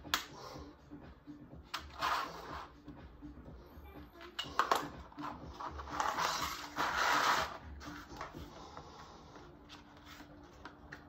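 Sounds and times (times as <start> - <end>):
plastic sliding on floor tiles: 1.7 - 2.7, 4.6 - 11.0.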